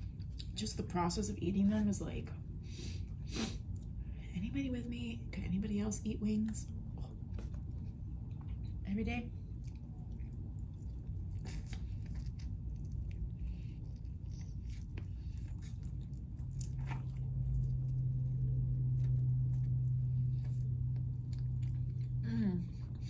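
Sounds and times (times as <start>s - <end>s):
steady low hum: 0.0s - 23.0s
wet chewing of chicken wing: 7.2s - 23.0s.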